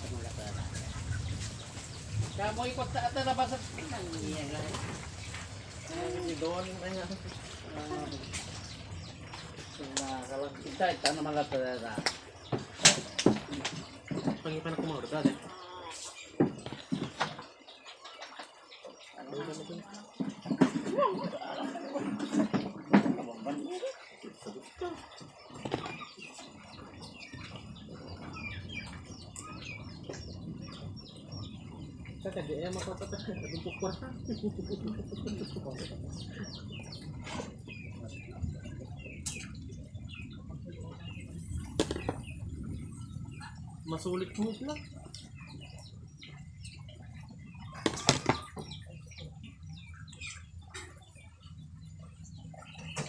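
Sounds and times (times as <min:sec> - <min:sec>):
birds chirping: 0:00.0 - 0:53.0
low steady hum: 0:00.0 - 0:53.0
low steady rumble: 0:26.5 - 0:47.8.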